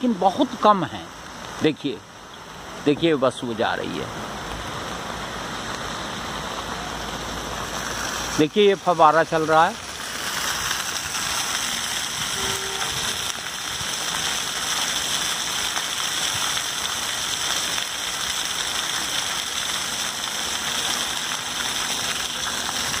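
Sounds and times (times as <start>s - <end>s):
fountain water splashing on stone: 0.0s - 23.0s.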